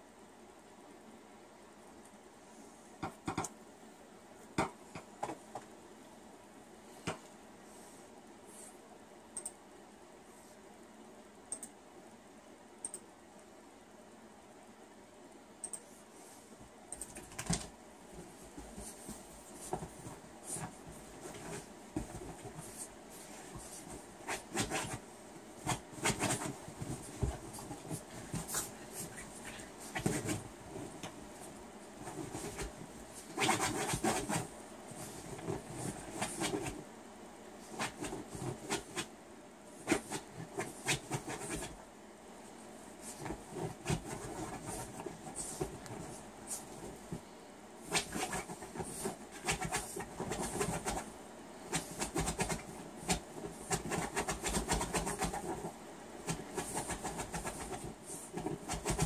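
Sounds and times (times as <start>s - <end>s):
dog paws scratching: 17.1s - 25.0s, 25.6s - 36.8s, 37.6s - 39.1s, 39.8s - 41.8s, 43.0s - 47.2s, 47.8s - 59.0s.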